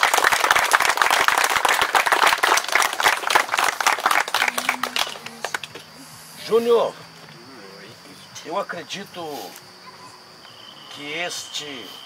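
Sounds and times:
crowd applauding: 0.0s - 6.0s.

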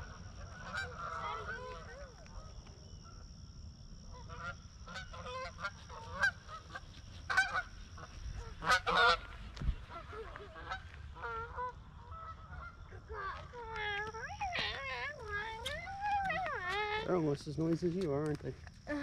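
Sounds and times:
geese honking: 0.0s - 2.0s, 4.1s - 17.1s.

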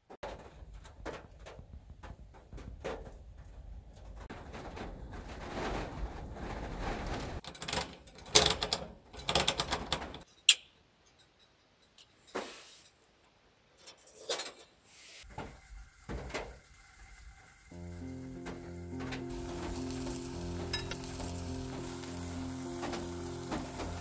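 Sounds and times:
metal clicking and rattling: 0.2s - 10.5s.

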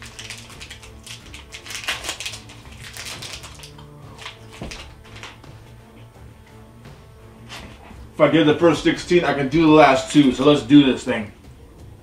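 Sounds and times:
plastic wrapper crinkling: 0.0s - 5.4s.

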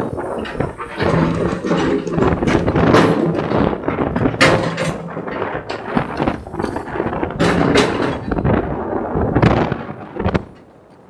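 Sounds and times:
excavator engine running: 0.0s - 8.4s
rock knocks and crashes: 0.4s - 8.7s.

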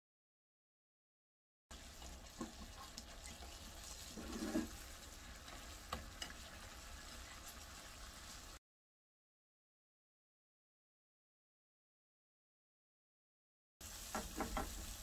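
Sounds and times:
sauce sizzling in a frying pan: 1.7s - 8.6s, 13.8s - 15.0s.

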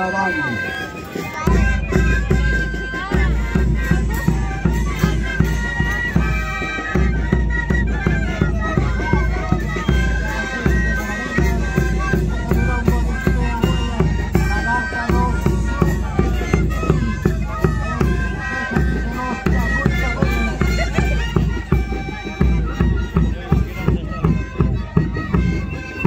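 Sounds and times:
wind instruments playing melody: 0.0s - 26.0s
bass drum beat: 1.5s - 26.0s.

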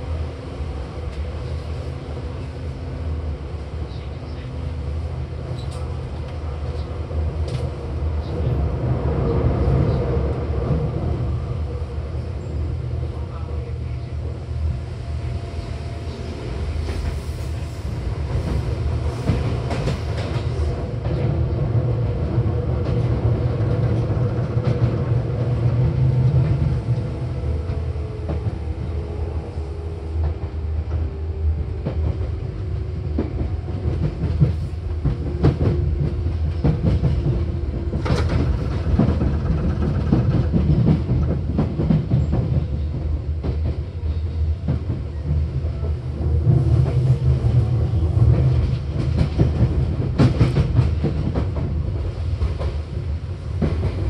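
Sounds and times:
train wheels rumbling on rail: 0.0s - 54.0s
rail joint clacks: 5.4s - 8.9s, 15.4s - 28.7s, 30.2s - 54.0s.

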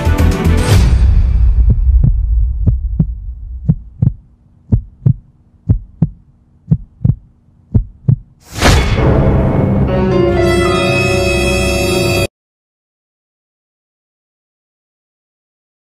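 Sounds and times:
music: 0.0s - 3.0s, 8.5s - 12.3s
heartbeat thumps: 1.3s - 8.4s
faint steady hum: 2.0s - 8.4s.

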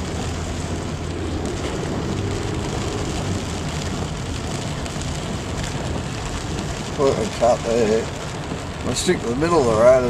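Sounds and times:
engine low hum: 0.0s - 6.7s
rain and tyres hissing in water: 0.0s - 10.0s.

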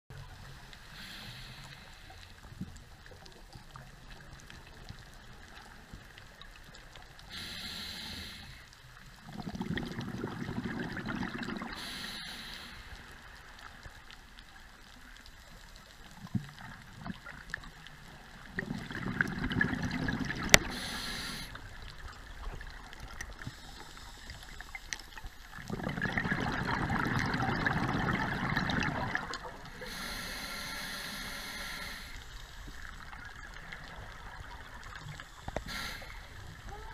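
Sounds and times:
regulator hissing inhalations: 0.9s - 2.4s, 7.3s - 8.7s, 11.7s - 13.1s, 20.7s - 21.6s, 29.8s - 32.5s, 35.4s - 36.5s
exhaled bubbles underwater: 9.2s - 12.2s, 16.2s - 30.3s.

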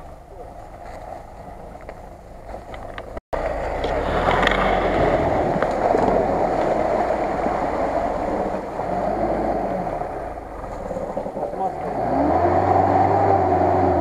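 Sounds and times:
muddy water sloshing and splashing: 0.0s - 13.0s
off-road vehicle engine under load: 0.0s - 14.0s.

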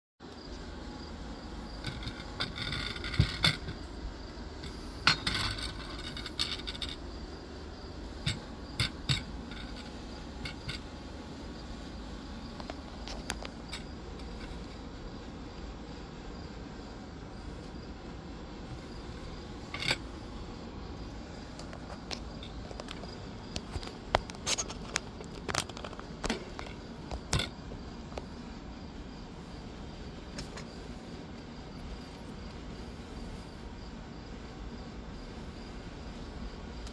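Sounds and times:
high insect drone: 0.2s - 36.9s
low background hum: 0.2s - 36.9s
outdoor background hiss: 0.2s - 36.9s
scraping rustles: 21.5s - 27.6s.

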